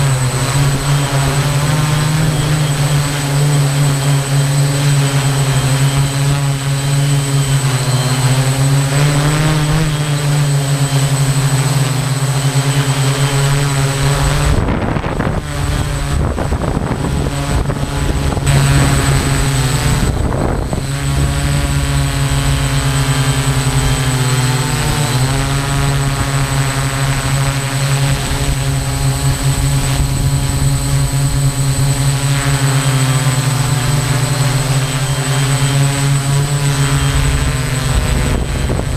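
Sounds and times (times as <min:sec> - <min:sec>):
drone propellers whining: 0:00.0 - 0:38.9
rough rushing noise: 0:13.7 - 0:27.6.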